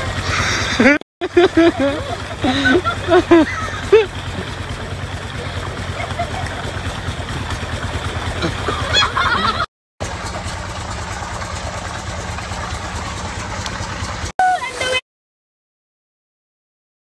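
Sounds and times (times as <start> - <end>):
engine running: 0.0 - 15.0
water churning: 0.0 - 15.0
short high voice or laugh: 0.1 - 4.1, 14.4 - 15.0.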